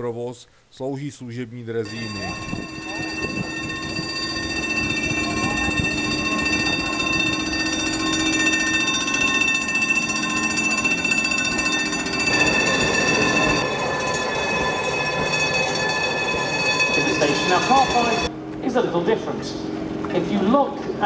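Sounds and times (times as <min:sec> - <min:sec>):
tram rattling on rails: 0:01.9 - 0:18.3
tram high metallic whine: 0:01.9 - 0:18.5.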